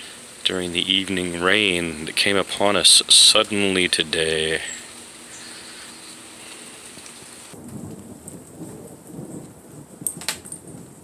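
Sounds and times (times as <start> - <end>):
light rain falling: 0.0 - 11.0
low rumble of thunder: 7.5 - 11.0.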